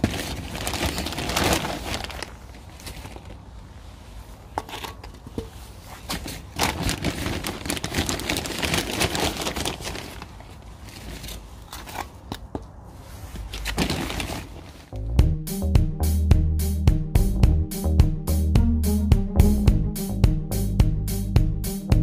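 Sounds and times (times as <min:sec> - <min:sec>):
plastic bag crinkling: 0:00.0 - 0:03.6, 0:05.9 - 0:12.0, 0:13.4 - 0:14.9.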